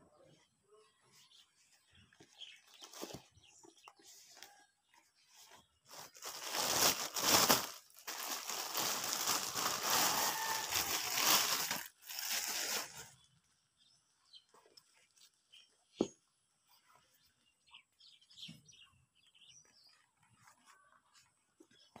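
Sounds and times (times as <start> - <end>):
plastic packaging crinkling: 5.9 - 13.1.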